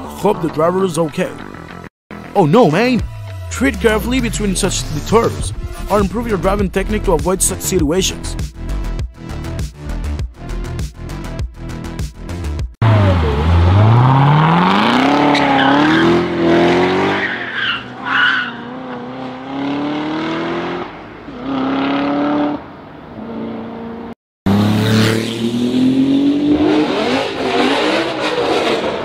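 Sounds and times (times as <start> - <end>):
car engine accelerating hard: 12.8 - 17.8, 18.6 - 22.6, 23.6 - 29.0
car engine revving: 12.8 - 22.6, 23.3 - 29.0
tyre squeal: 17.1 - 18.7.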